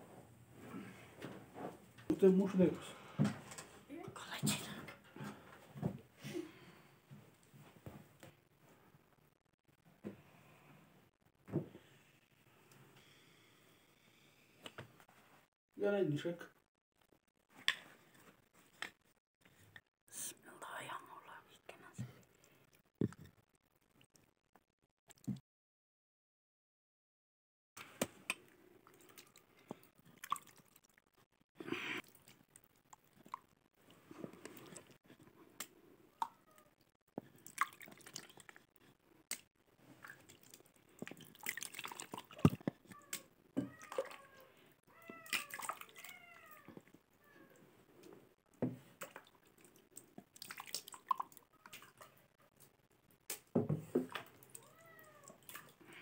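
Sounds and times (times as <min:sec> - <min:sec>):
buttermilk splashing and dripping: 0:28.8 - 0:31.0, 0:36.2 - 0:38.6, 0:39.3 - 0:44.2, 0:45.1 - 0:46.1, 0:49.0 - 0:52.1.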